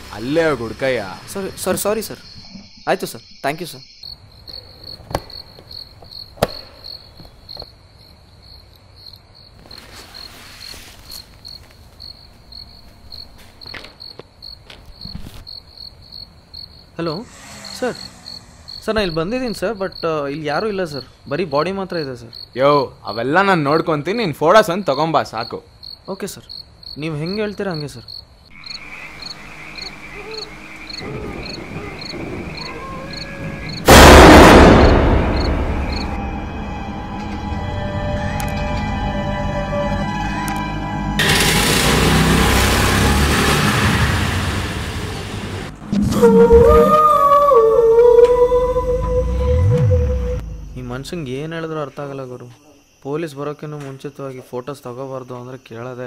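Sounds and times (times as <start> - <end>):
frogs calling: 0.0 - 10.3, 11.1 - 34.0
crickets chirping: 0.0 - 40.8, 45.7 - 56.0.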